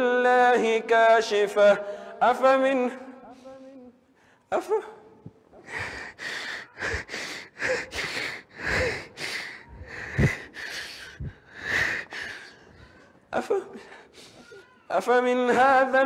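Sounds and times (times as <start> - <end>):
man sobbing: 4.5 - 16.0.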